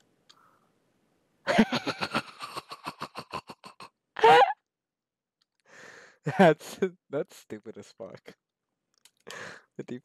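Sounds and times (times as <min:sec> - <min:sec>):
man laughing hard: 0:01.5 - 0:04.5.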